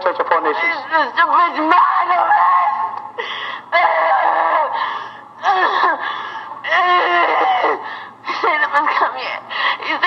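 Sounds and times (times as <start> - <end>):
people crying and wailing: 1.7 - 8.2.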